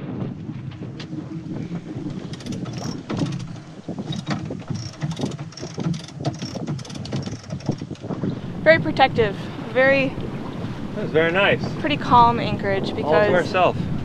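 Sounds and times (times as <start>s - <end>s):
water rushing past boat: 0.0s - 14.0s
wind buffeting microphone: 0.0s - 14.0s.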